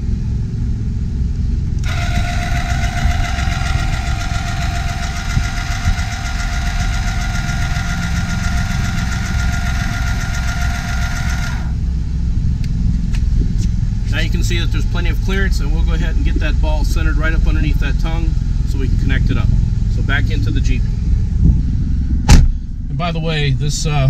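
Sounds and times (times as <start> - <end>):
engine idling low rumble: 0.0 - 24.0
electric motor whine: 1.8 - 11.8.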